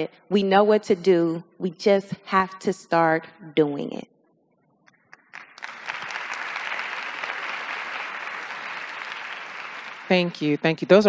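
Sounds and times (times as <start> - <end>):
audience applause: 5.3 - 10.6.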